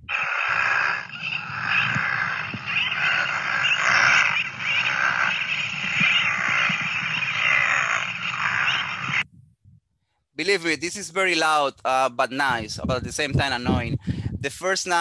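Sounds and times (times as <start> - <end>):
seabird colony calls: 0.0 - 9.2.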